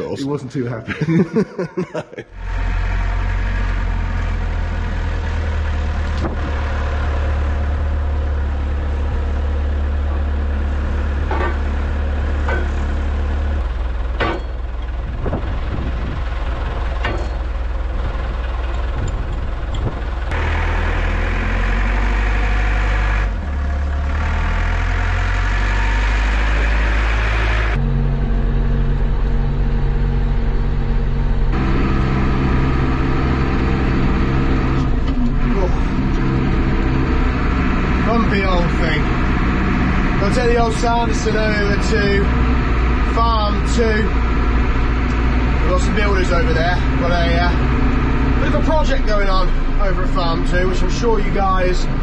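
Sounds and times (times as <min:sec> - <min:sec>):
diesel engine idling: 0:00.0 - 0:52.0
metal clanks: 0:11.2 - 0:13.2, 0:14.1 - 0:15.5, 0:16.6 - 0:20.4.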